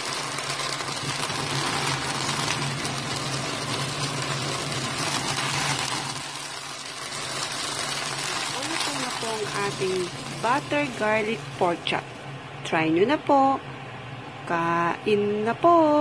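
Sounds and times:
pork chops sizzling in a pan: 0:00.0 - 0:12.3.

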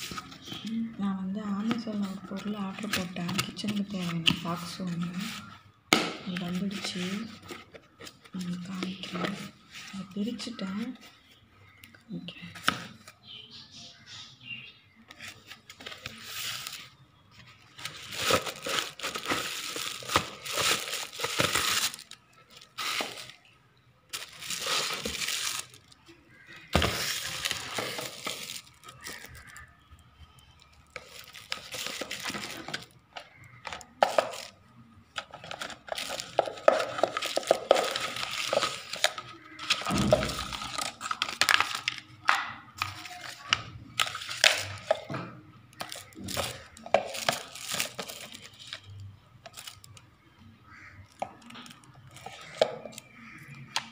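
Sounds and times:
plastic wrapping crinkling: 0:01.4 - 0:05.6, 0:15.1 - 0:50.0, 0:50.7 - 0:53.9
plastic containers knocking down: 0:26.7 - 0:28.6, 0:35.3 - 0:42.5.

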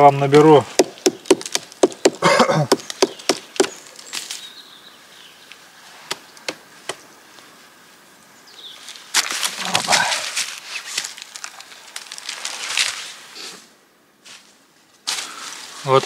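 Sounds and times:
scraping crunch: 0:08.7 - 0:13.6.

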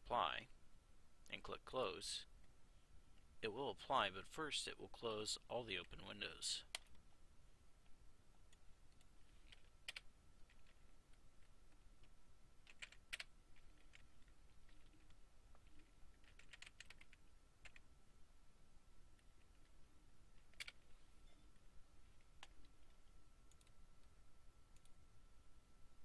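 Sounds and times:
faint steady high tone: 0:21.0 - 0:26.0.

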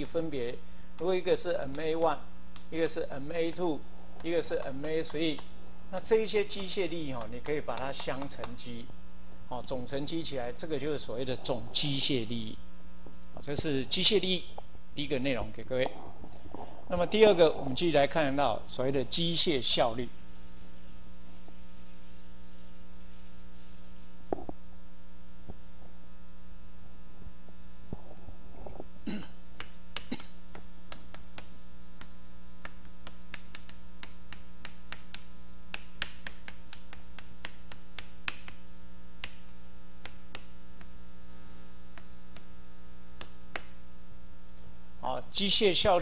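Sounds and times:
electrical mains hum: 0:00.0 - 0:46.0
chalk tapping on blackboard: 0:04.2 - 0:05.5, 0:06.4 - 0:08.7, 0:29.6 - 0:38.6, 0:40.0 - 0:40.9, 0:43.2 - 0:43.8.

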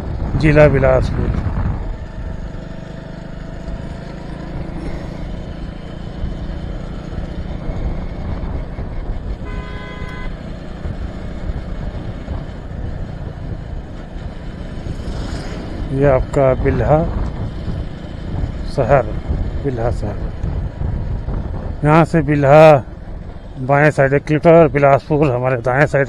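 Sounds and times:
motorcycle engine and road noise: 0:00.0 - 0:26.0
vehicle horn: 0:09.4 - 0:10.5.

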